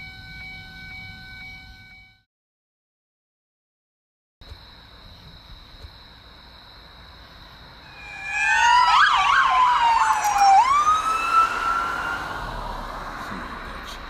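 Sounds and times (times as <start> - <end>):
high-pitched ringing tone: 0.0 - 2.3, 7.9 - 9.2
police siren wailing and yelping: 7.9 - 13.1.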